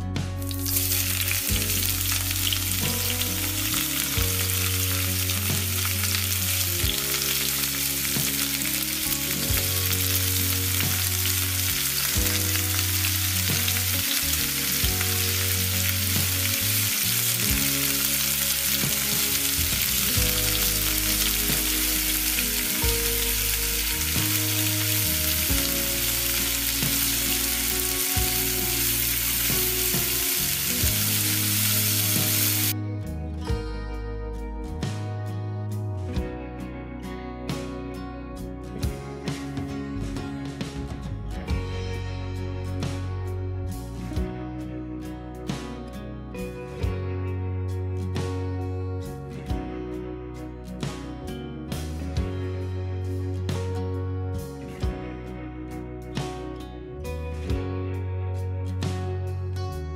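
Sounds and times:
food sizzling in a frying pan: 0:00.4 - 0:32.8.

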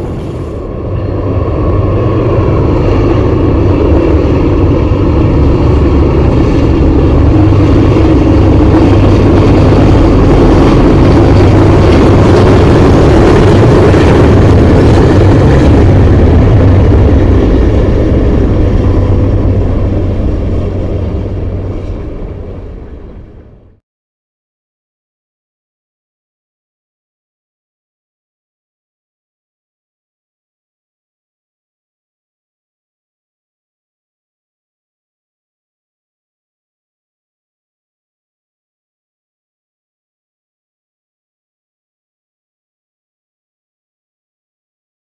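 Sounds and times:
diesel locomotive engines humming: 0:00.0 - 0:23.8
freight cars rolling: 0:00.0 - 0:23.8.

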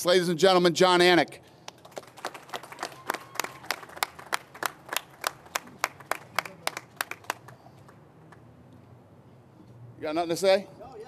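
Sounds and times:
hands clapping: 0:01.6 - 0:08.4.

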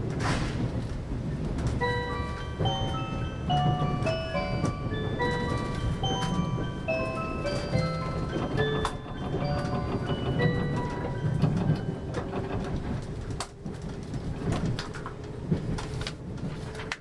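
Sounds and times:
train rumble: 0:00.0 - 0:17.0
train wheels clacking on rails: 0:00.0 - 0:17.0
bell-like chime tune: 0:01.8 - 0:12.2.

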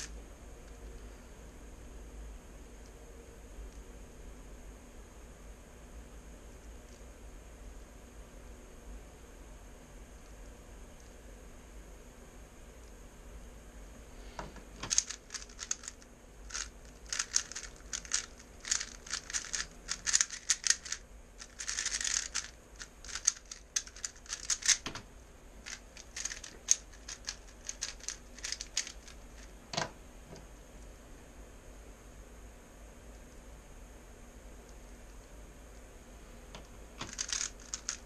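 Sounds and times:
puzzle cube clicking: 0:14.8 - 0:25.0, 0:25.6 - 0:29.5, 0:36.6 - 0:38.0.

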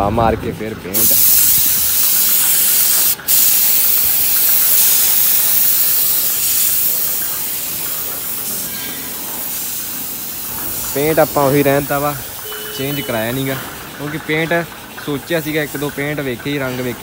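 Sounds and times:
spray gun hissing: 0:01.0 - 0:14.0.

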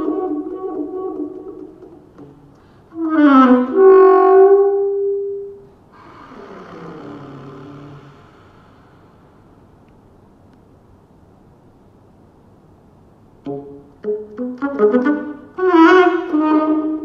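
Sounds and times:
alto saxophone solo: 0:00.0 - 0:09.6, 0:13.5 - 0:17.0.

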